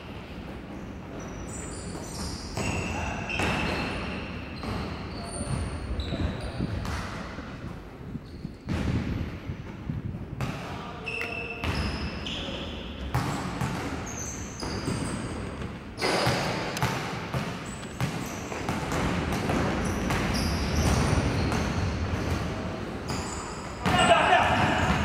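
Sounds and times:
sneakers squeaking: 0.0 - 9.6, 10.4 - 25.0
basketball bouncing: 8.6 - 9.4, 13.1 - 22.5.

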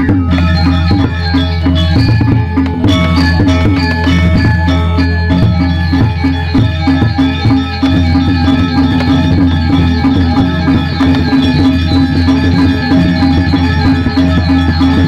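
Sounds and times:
gamelan music: 0.0 - 15.0
low gong hum: 7.9 - 15.0.

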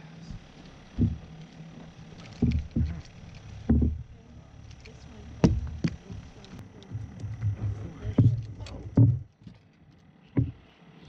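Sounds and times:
dull thumps and knocks on boat: 1.0 - 1.3, 2.4 - 4.1, 5.4 - 6.1, 7.0 - 9.6, 10.4 - 10.7.

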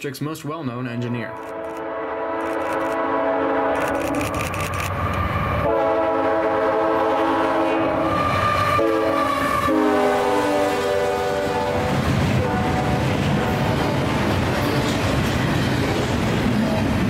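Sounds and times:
train rumbling past: 1.4 - 17.0
locomotive air horn: 1.5 - 4.1, 5.1 - 14.8.

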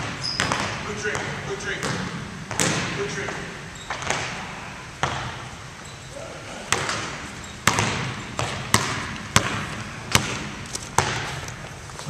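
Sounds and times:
basketball bouncing on hardwood floor: 0.0 - 4.4, 5.0 - 5.4, 6.7 - 11.4.

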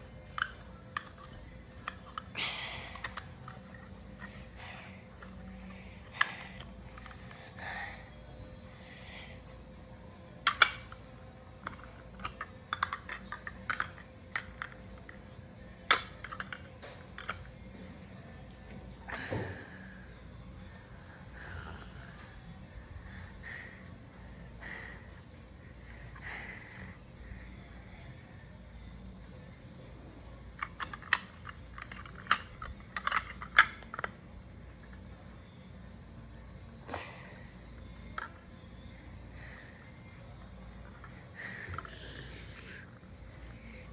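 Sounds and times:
plastic toy clicking: 0.3 - 2.3, 2.9 - 4.3, 10.4 - 11.0, 11.6 - 15.2, 15.9 - 17.5, 30.6 - 34.2.

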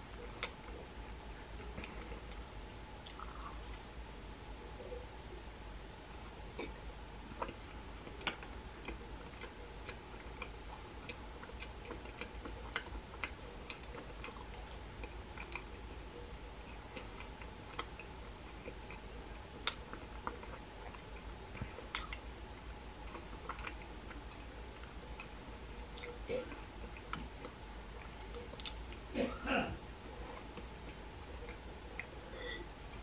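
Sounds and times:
steady electrical hum: 0.0 - 33.0
faint chewing: 1.6 - 3.8, 6.6 - 22.3, 23.0 - 29.0.

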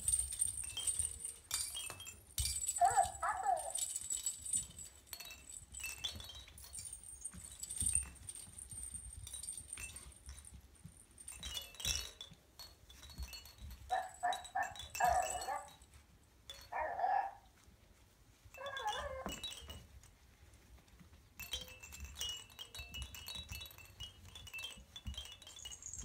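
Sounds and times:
toy bells jingling: 0.0 - 17.3, 18.5 - 20.2, 21.0 - 26.0
puppies yipping: 2.7 - 3.9, 13.9 - 15.8.

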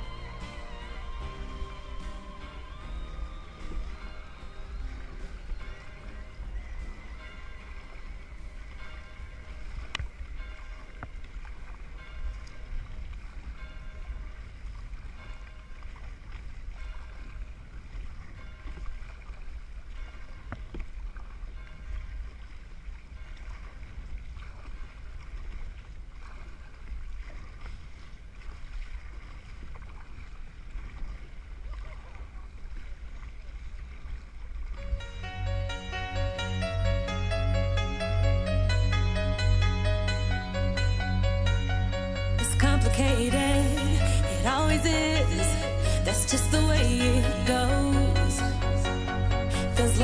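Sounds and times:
water slapping hull: 0.0 - 35.1
paddle blades splashing: 0.0 - 50.0.

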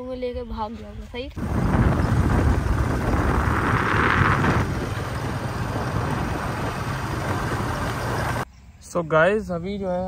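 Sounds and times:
wind buffeting microphone: 0.9 - 8.4.

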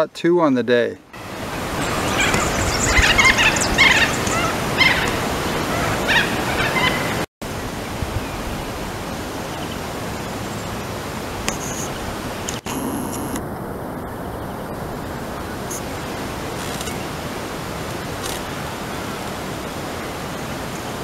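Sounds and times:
small birds chirping: 1.4 - 7.2
steady hiss: 11.3 - 19.4.

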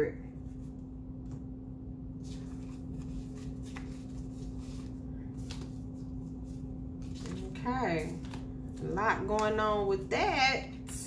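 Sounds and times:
steady low hum: 0.0 - 11.0
cards being shuffled: 2.2 - 9.6.

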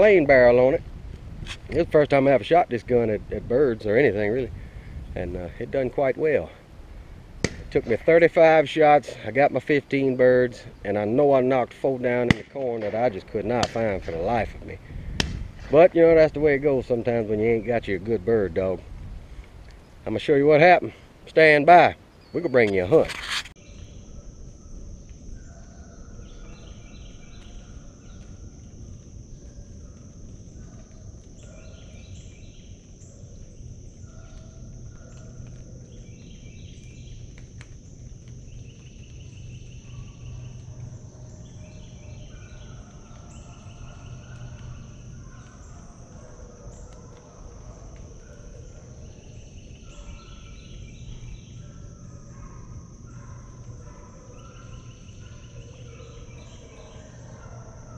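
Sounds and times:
high-pitched insect drone: 20.0 - 57.9
chirping calls: 38.4 - 57.9.

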